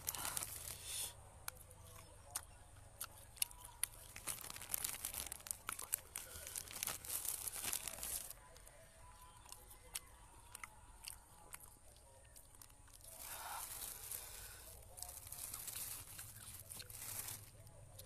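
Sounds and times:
plastic bag crinkling: 0:00.0 - 0:00.8, 0:03.9 - 0:08.7, 0:12.6 - 0:17.7.

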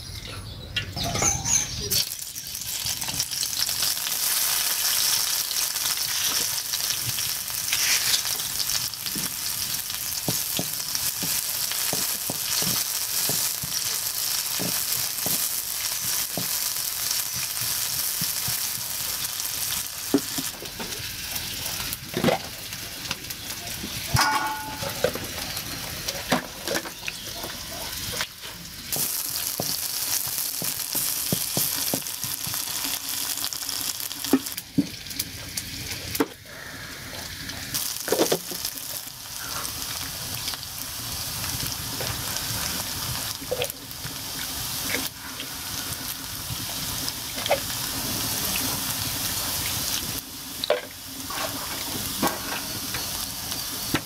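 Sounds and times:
onions sizzling in hot oil: 0:01.2 - 0:54.0.

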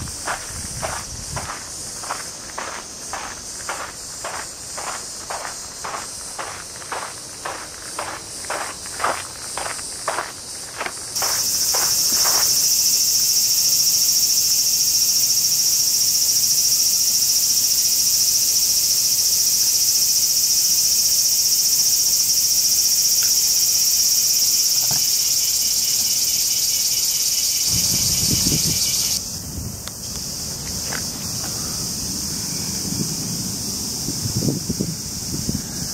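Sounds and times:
footsteps on garden path: 0:00.0 - 0:12.7, 0:30.1 - 0:31.7
cicadas chorus: 0:00.0 - 0:35.9.

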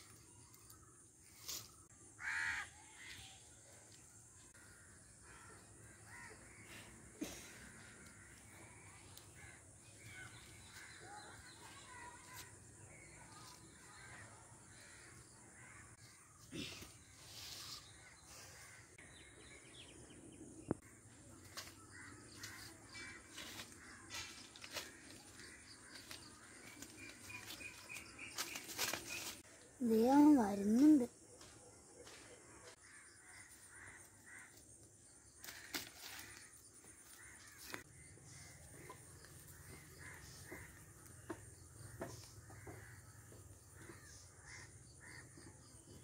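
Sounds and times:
crows cawing: 0:02.2 - 0:03.3, 0:04.5 - 0:12.5, 0:21.0 - 0:28.0, 0:32.8 - 0:45.6.

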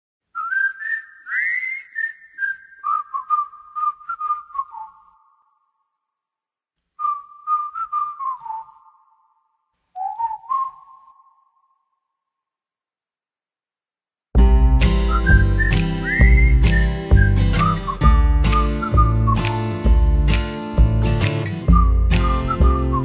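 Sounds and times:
person whistling a melody: 0:00.4 - 0:05.3, 0:07.0 - 0:09.2, 0:10.0 - 0:11.8, 0:14.7 - 0:20.4, 0:21.3 - 0:23.0.

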